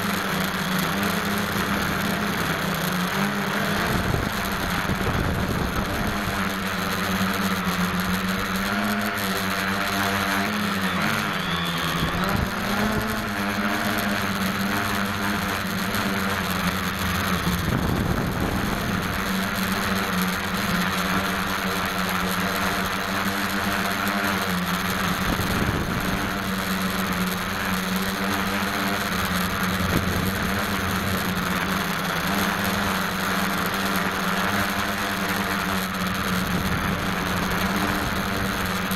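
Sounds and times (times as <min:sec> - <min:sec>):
quadcopter droning: 0:00.0 - 0:38.9
rushing air: 0:29.3 - 0:32.2.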